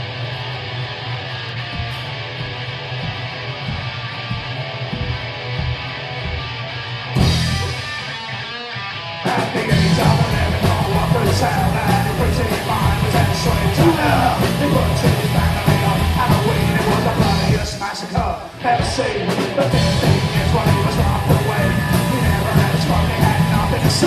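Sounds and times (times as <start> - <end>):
drums: 0.0 - 24.0
electric guitar: 0.0 - 24.0
upright double bass: 7.2 - 7.7, 9.7 - 17.6, 19.8 - 24.0
person singing: 9.2 - 24.0.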